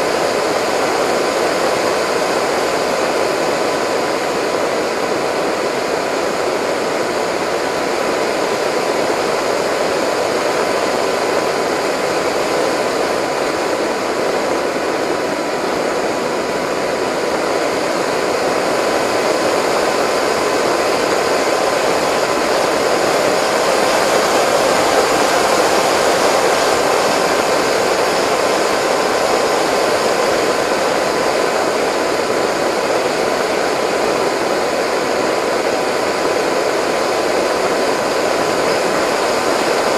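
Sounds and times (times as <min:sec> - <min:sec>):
motor and propeller whine: 0:00.0 - 0:39.9.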